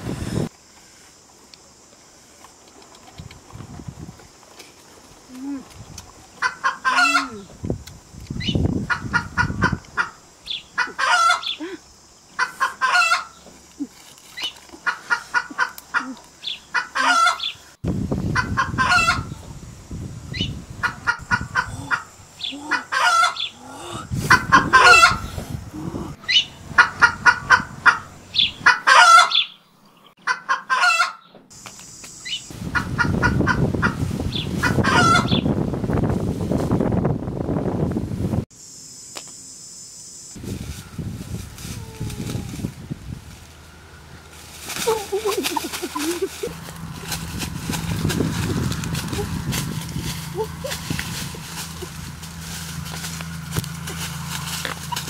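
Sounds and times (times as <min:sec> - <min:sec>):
chicken clucking: 0:06.4 - 0:07.5, 0:08.9 - 0:10.2, 0:10.8 - 0:11.6, 0:12.4 - 0:13.5, 0:14.4 - 0:17.6, 0:18.3 - 0:19.4, 0:20.8 - 0:23.6, 0:24.2 - 0:25.3, 0:26.2 - 0:29.5, 0:30.2 - 0:31.2, 0:34.6 - 0:35.4, 0:44.8 - 0:46.7
rustling in dry leaf litter: 0:13.3 - 0:16.6, 0:40.4 - 0:55.0.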